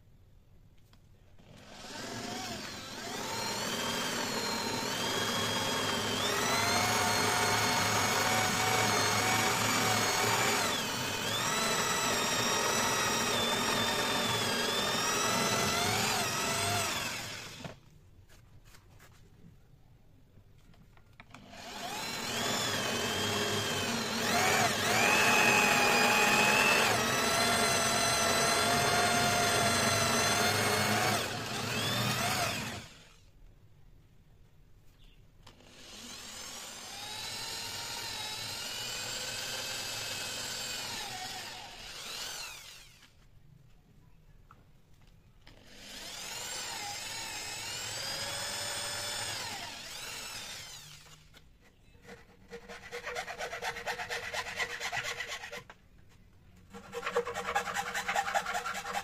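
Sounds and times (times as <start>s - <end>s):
electric drill boring into wood: 1.4s - 17.8s, 21.3s - 33.3s, 35.4s - 43.2s, 45.5s - 51.4s.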